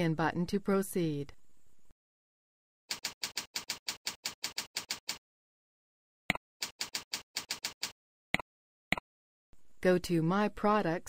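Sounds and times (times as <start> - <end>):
keyboard typing: 2.9 - 5.2, 6.6 - 8.0.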